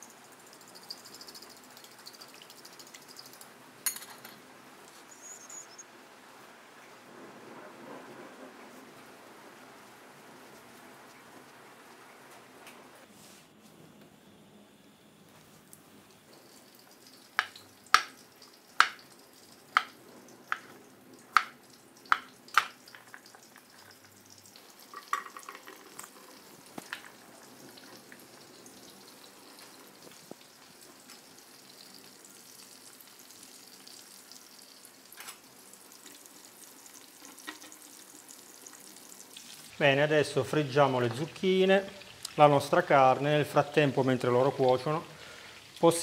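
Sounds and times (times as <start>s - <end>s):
vegetables sizzling in oil: 15.3s - 46.0s.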